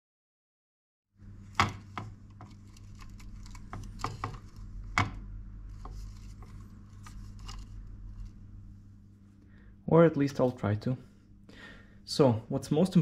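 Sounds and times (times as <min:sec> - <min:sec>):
hands rustling wires: 0:01.2 - 0:08.8
low steady hum: 0:01.2 - 0:13.0.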